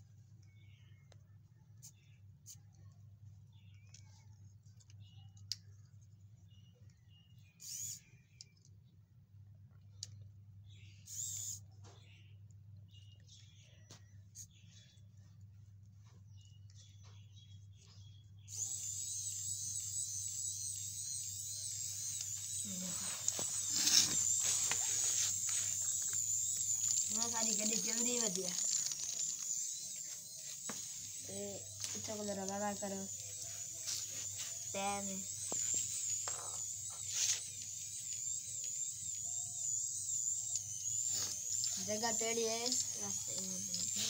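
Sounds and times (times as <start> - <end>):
toy motor whining: 6.8 - 8.8, 10.0 - 12.1, 16.0 - 44.0
plastic parts clicking and rustling: 23.2 - 30.0
toy car knocking on concrete: 36.2 - 36.7.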